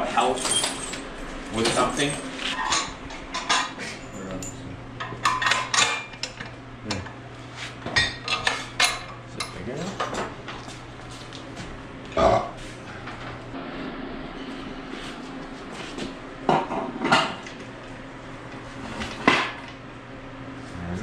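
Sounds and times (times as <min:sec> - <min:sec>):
low steady hum: 0:00.0 - 0:21.0
person burping: 0:12.2 - 0:12.6.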